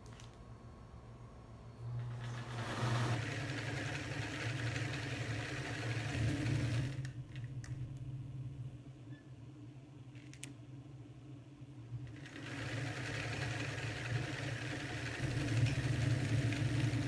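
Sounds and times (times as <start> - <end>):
sewing machine running: 2.0 - 7.1, 12.0 - 17.0.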